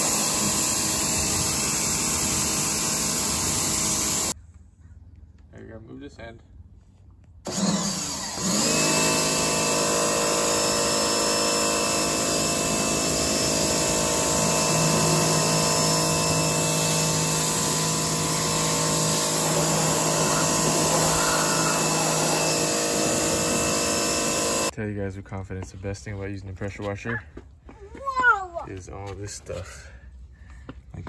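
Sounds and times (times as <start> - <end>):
pressure washer motor whine: 0.0 - 4.4, 7.5 - 24.7
spray hissing: 12.8 - 24.7.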